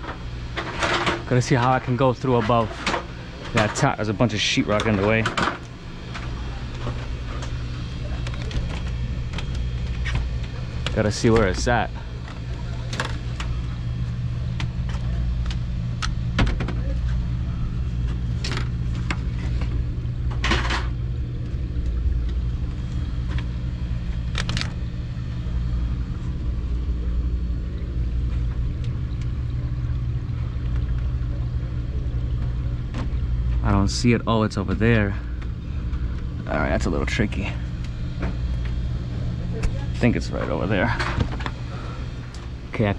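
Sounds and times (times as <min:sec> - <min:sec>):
low mechanical hum: 0:00.0 - 0:42.9
rustling of cables: 0:17.8 - 0:25.4.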